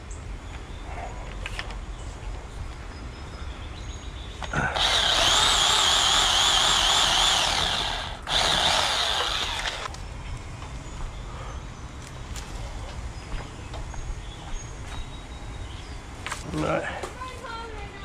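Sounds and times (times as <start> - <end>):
electric pole saw running: 4.6 - 10.0.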